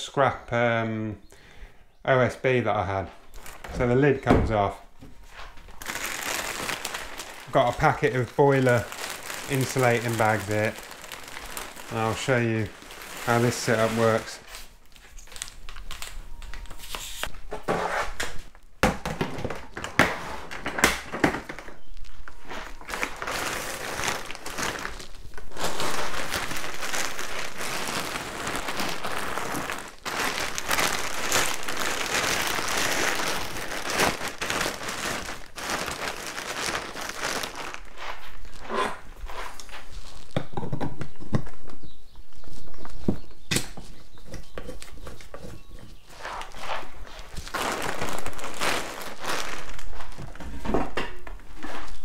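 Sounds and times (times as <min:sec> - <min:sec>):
plastic wrapping crinkling: 0:03.1 - 0:17.4, 0:19.4 - 0:40.4, 0:46.1 - 0:52.0.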